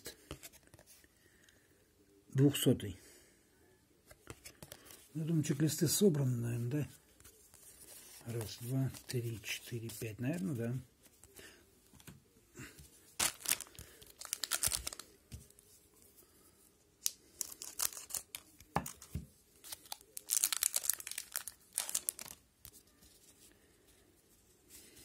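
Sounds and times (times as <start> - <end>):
plastic wrapper crinkling and tearing: 13.2 - 15.6, 17.0 - 22.9.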